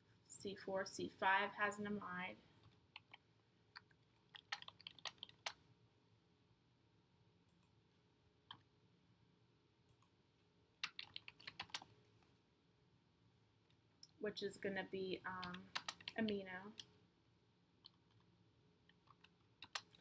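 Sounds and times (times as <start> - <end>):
computer keyboard typing: 2.6 - 3.2, 3.8 - 5.6, 10.8 - 11.9, 15.3 - 16.9, 18.9 - 20.0.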